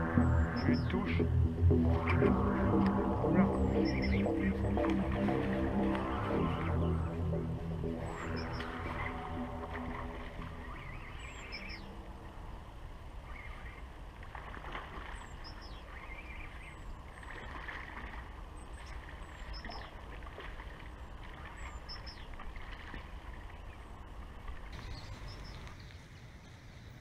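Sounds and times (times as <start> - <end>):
steady low rumble: 0.0 - 14.2
small bird chirping: 24.8 - 26.6.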